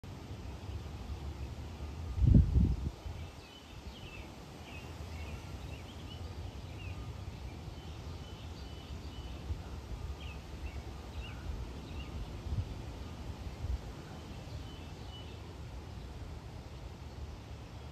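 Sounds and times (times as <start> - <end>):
small birds chirping: 0.2 - 17.9
wind buffet on microphone: 2.0 - 3.4.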